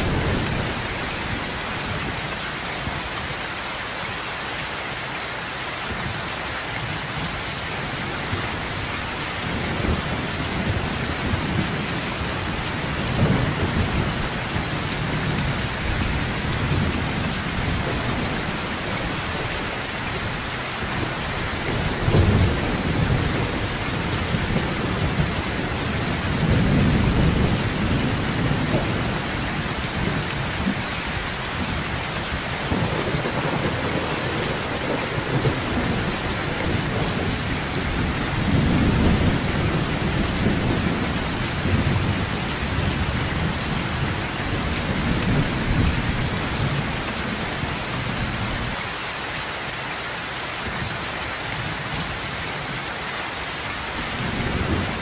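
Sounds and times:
rolling thunder: 0.0s - 2.0s, 8.4s - 48.5s
heavy rain on a metal roof: 0.0s - 55.0s.

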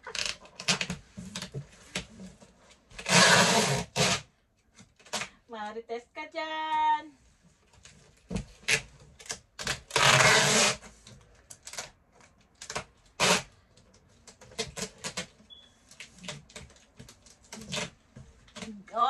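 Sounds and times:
packing tape pulled off roll: 3.0s - 5.3s, 8.6s - 13.5s, 14.2s - 18.7s.

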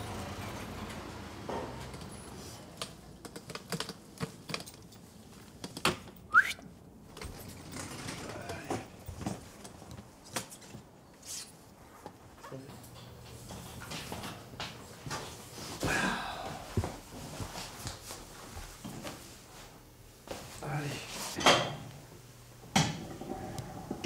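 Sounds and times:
wheelchair clicks and knocks: 0.8s - 6.2s, 7.0s - 11.0s.

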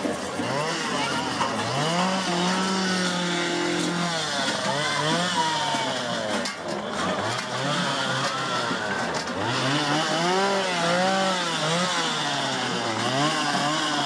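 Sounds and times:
small engine revving: 0.0s - 14.0s.

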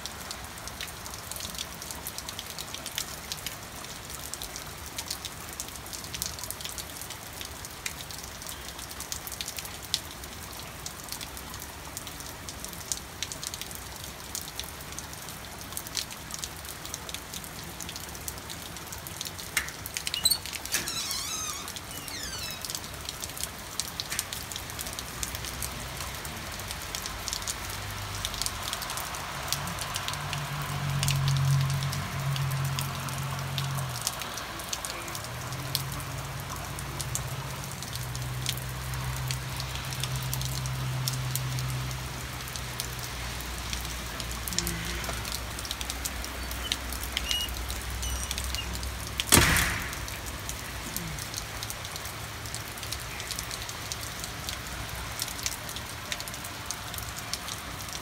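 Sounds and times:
steady rain falling: 0.0s - 58.0s
sharp knock: 49.3s - 50.1s.

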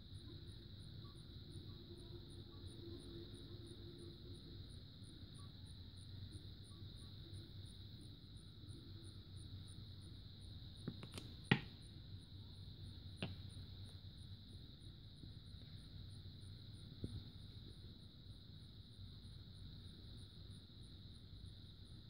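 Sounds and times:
faint high-pitched tone: 0.0s - 10.2s.

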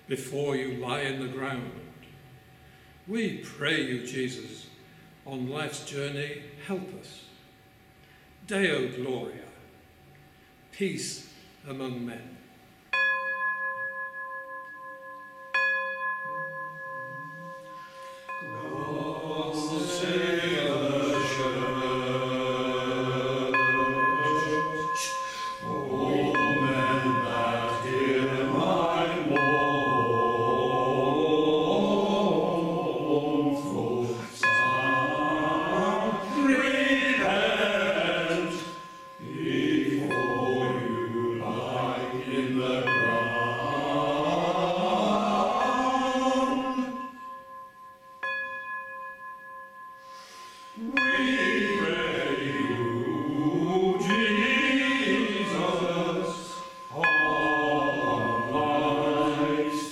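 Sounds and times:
bell ringing: 12.9s - 31.9s, 34.1s - 59.9s
men chanting in unison: 18.3s - 47.0s, 50.8s - 59.9s.

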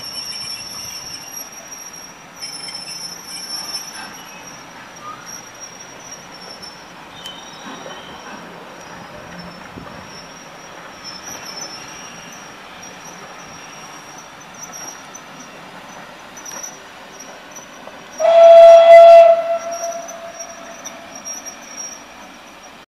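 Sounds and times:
train wheel squeal: 0.0s - 22.9s
steam locomotive whistle: 18.1s - 22.0s.

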